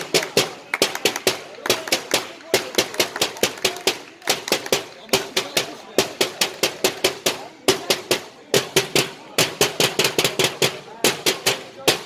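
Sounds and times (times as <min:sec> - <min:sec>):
football supporters clapping: 0:00.0 - 0:07.0.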